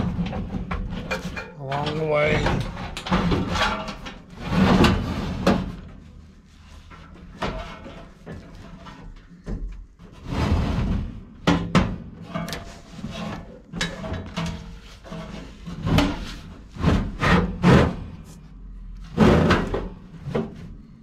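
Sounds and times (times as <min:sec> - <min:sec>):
sheet metal scraping: 0:00.0 - 0:05.8, 0:12.2 - 0:18.4.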